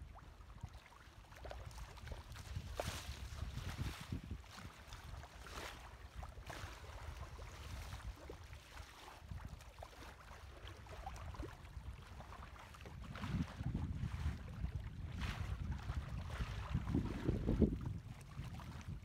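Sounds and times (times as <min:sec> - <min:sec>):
water splashing against hull: 0:00.0 - 0:19.0
wind gusting on microphone: 0:02.4 - 0:04.5, 0:13.0 - 0:19.0.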